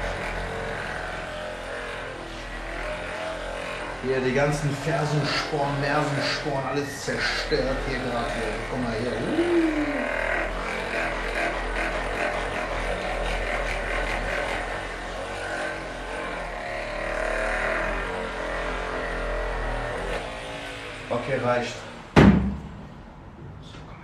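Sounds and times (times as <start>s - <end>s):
massage gun hammering: 22.1s - 23.0s.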